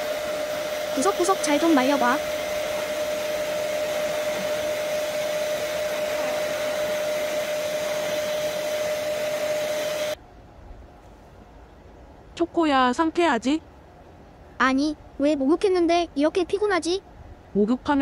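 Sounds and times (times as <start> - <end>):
hair dryer running: 0.0 - 10.2.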